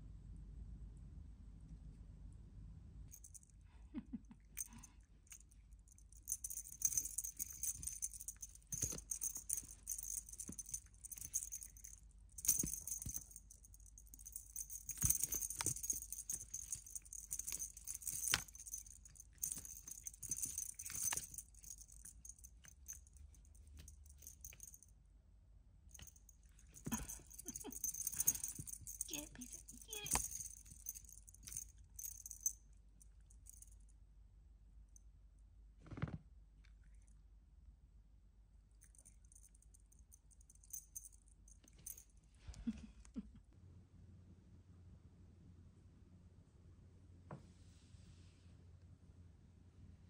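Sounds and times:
cat toy jingling and rattling: 0:03.1 - 0:03.4, 0:04.6 - 0:24.8, 0:25.9 - 0:32.6, 0:38.8 - 0:42.1.

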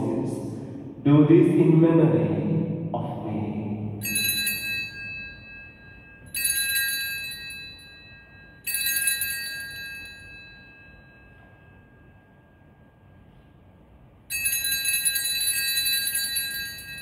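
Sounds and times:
small bells jangling: 0:04.0 - 0:12.6, 0:14.3 - 0:17.0.

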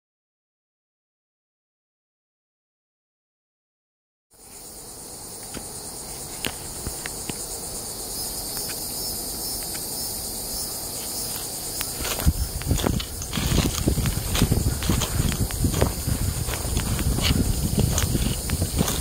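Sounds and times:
high-pitched insect chorus: 0:04.4 - 0:19.0
footsteps on leafy trail: 0:10.9 - 0:19.0.

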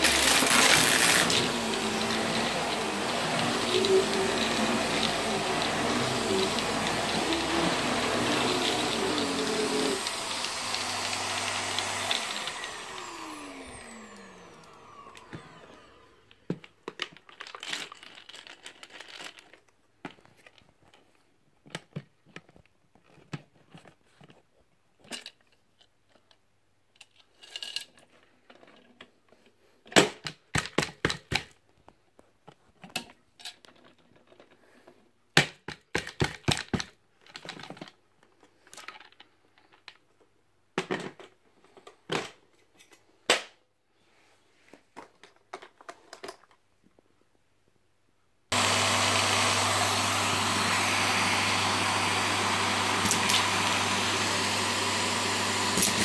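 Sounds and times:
vacuum cleaner running: 0:00.0 - 0:16.5, 0:48.5 - 0:56.0.

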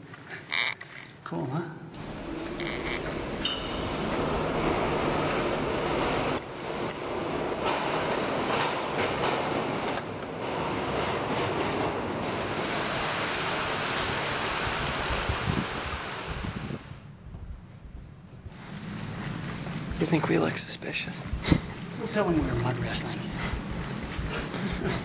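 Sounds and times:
steady loud rushing noise: 0:02.0 - 0:09.8.

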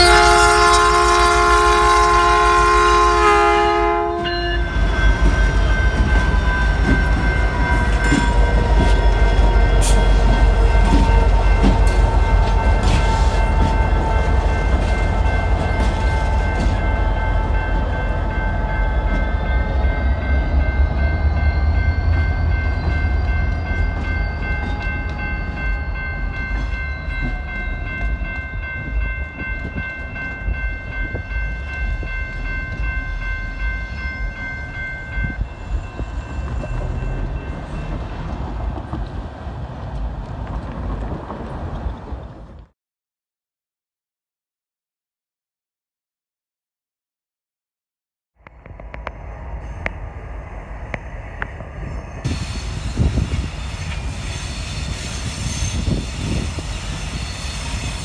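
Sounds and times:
train air horn chord: 0:00.0 - 0:04.8
diesel locomotives rumbling past: 0:00.0 - 0:42.7, 0:48.4 - 0:58.0
train clanks: 0:00.0 - 0:42.7, 0:48.4 - 0:58.0
wheels squealing: 0:51.9 - 0:58.0.

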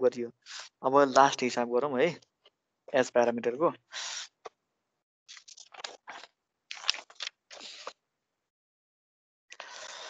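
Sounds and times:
paper pages rustling: 0:05.3 - 0:07.9.

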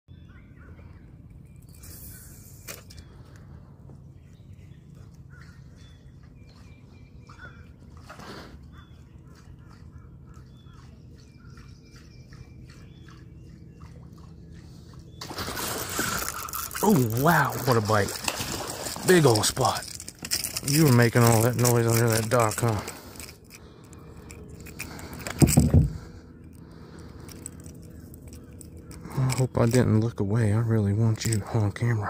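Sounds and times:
faint bird calls: 0:00.1 - 0:16.8
low steady rumble: 0:00.1 - 0:32.0
fish splashing at water surface: 0:15.2 - 0:20.5.

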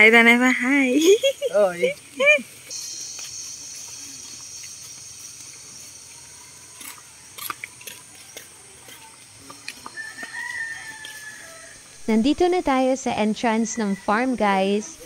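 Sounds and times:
footsteps of people walking: 0:01.9 - 0:12.2
distant rooster crowing: 0:09.8 - 0:12.1.

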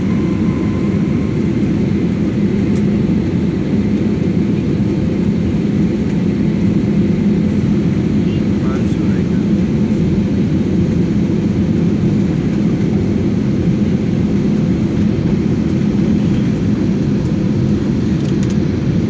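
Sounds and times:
airliner cabin rumble: 0:00.0 - 0:19.0.

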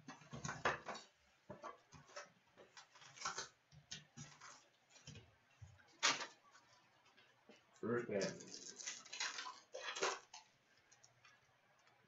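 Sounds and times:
plastic wrap crinkling: 0:08.2 - 0:11.2.

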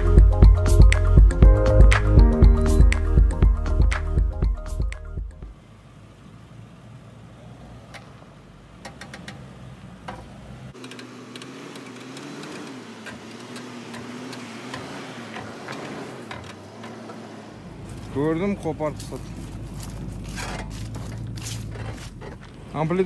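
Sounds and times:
vehicle crawling hum with ticks: 0:04.7 - 0:23.0.

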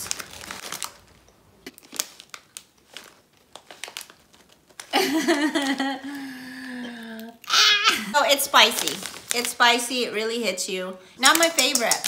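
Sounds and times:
chips crackling and crunching: 0:00.0 - 0:05.0, 0:08.2 - 0:10.0, 0:11.2 - 0:12.0
chip bag crinkling: 0:00.0 - 0:05.9, 0:08.2 - 0:10.1, 0:11.2 - 0:12.0.

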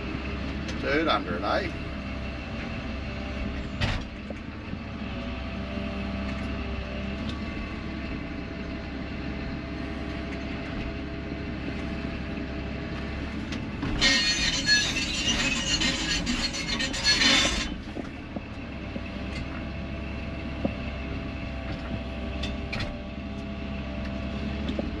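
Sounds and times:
diesel engine running: 0:00.0 - 0:25.0
high-pitched metallic squealing: 0:14.0 - 0:17.8.

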